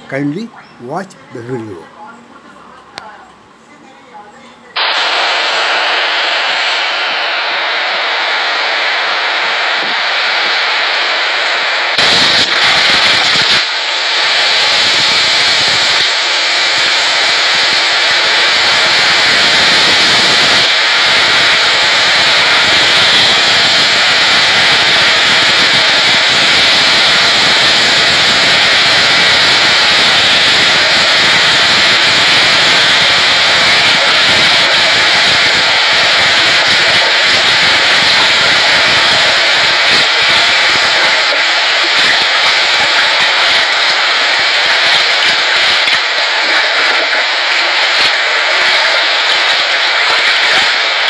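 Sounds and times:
driving rain over water: 12.0 - 51.0.

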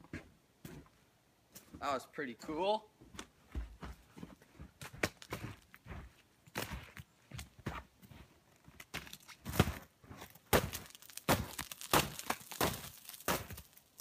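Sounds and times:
footsteps crunching through snow: 3.4 - 14.0.

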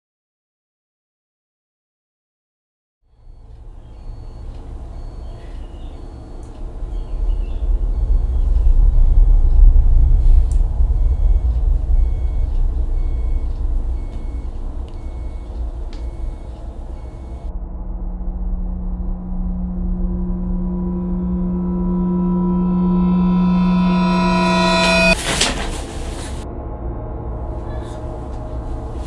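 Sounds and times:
deep low rumble: 3.1 - 29.0
faint high beeps: 3.2 - 17.5, 19.9 - 25.2.

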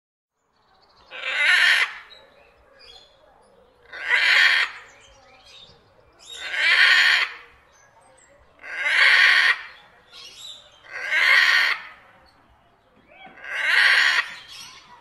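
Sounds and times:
macaw screeching: 1.1 - 2.1, 3.9 - 4.9, 6.4 - 7.4, 8.6 - 9.8, 10.8 - 12.0, 13.2 - 14.8.

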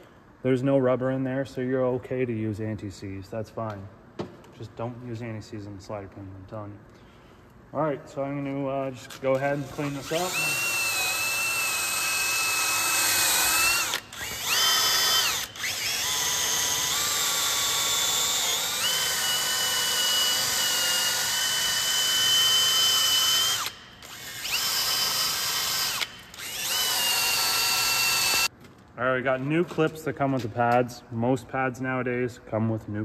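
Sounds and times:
electric drill with wire wheel: 9.7 - 28.5.

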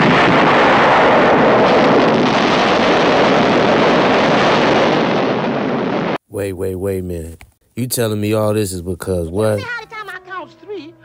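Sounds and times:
explosion blast: 0.0 - 6.2.

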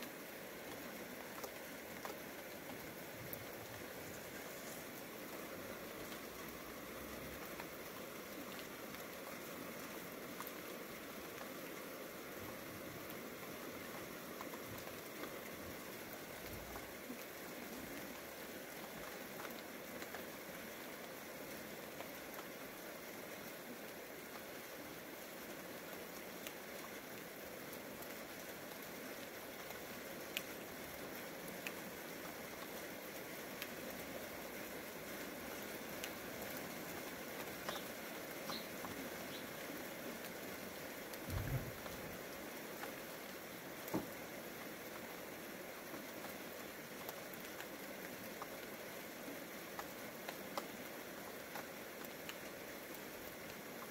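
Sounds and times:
light rain hissing: 0.0 - 53.9
raindrop ticks: 0.6 - 9.4, 13.0 - 20.4, 21.0 - 22.6, 25.9 - 34.2, 35.2 - 48.8, 49.4 - 53.9
low thump: 41.3 - 41.8.

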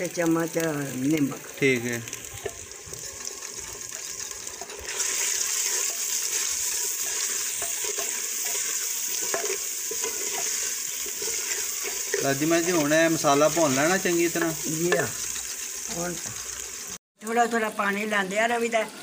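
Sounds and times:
masala sizzling in pot: 0.0 - 19.0
wooden spoon stirring and scraping: 2.3 - 15.5.

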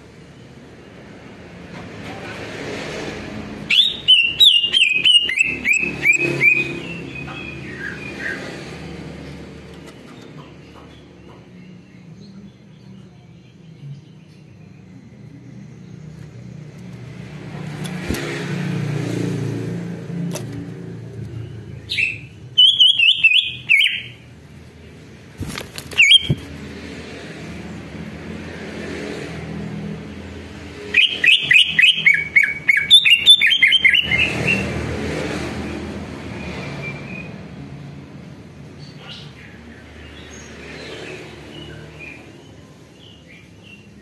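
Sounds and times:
bird singing chattering notes: 3.8 - 8.8, 20.3 - 24.4, 25.9 - 26.6, 30.9 - 34.7.

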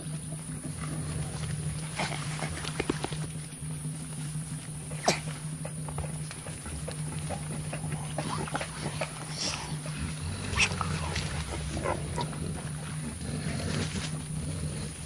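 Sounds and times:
small rustles: 8.1 - 15.0.

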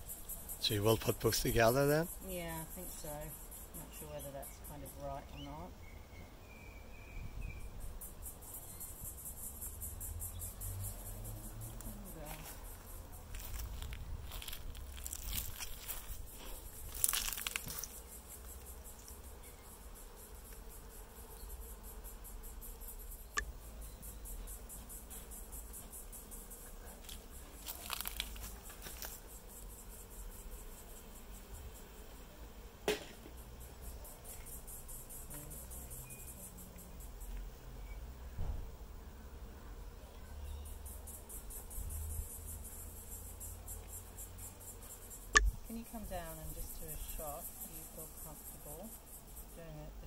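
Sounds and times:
high pulsing insect chirr: 0.0 - 50.0
honeybees buzzing: 0.0 - 50.0.

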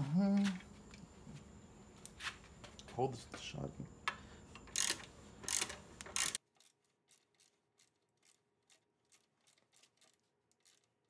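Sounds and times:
socket ratchet rasping: 4.5 - 11.0.

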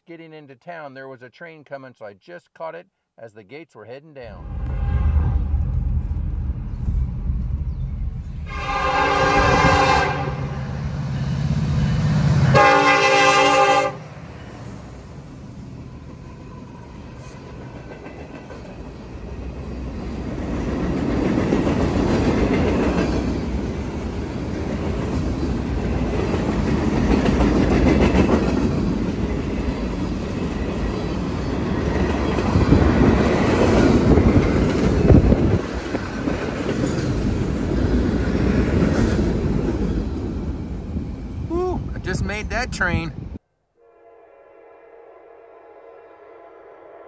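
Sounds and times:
train wheels clickety-clack: 26.1 - 29.3.

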